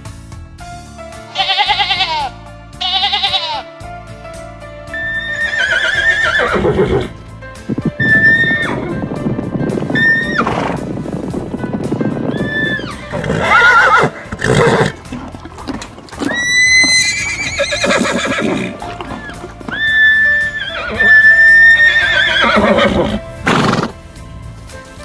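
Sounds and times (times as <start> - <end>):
background music: 0.0 - 25.0
horse neighing and whinnying: 1.4 - 3.6, 4.9 - 7.2, 8.0 - 9.0, 9.9 - 11.0, 12.3 - 24.0.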